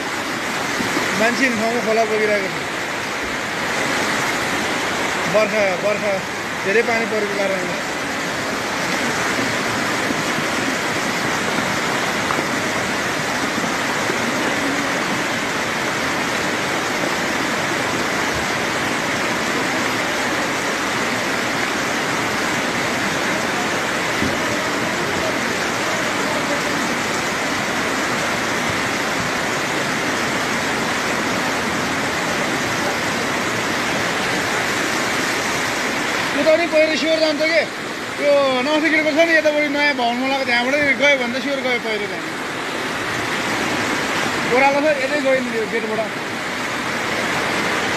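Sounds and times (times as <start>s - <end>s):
floodwater rushing: 0.0s - 47.9s.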